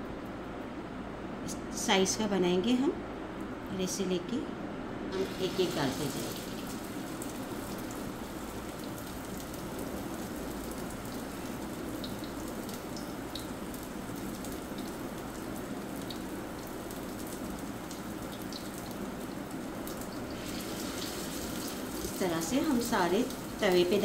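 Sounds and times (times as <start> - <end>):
crackles and spits of frying: 5.1 - 24.0
oil sizzling: 5.1 - 24.0.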